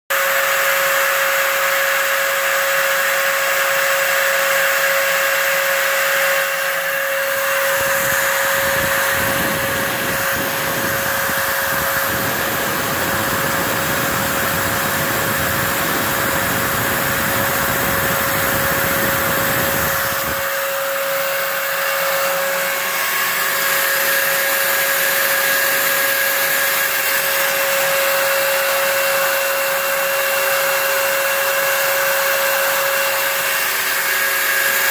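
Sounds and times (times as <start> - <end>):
router spindle whine: 0.1 - 34.9
vacuum rushing hiss: 6.8 - 24.5.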